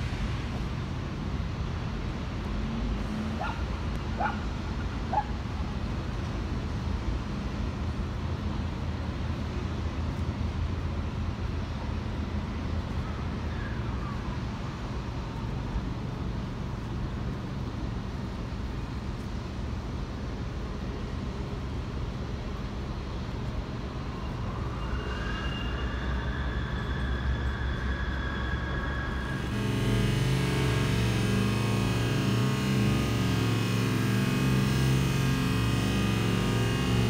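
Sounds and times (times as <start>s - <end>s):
high-pitched whine: 23.4s - 37.0s
mower engine humming: 29.2s - 37.0s.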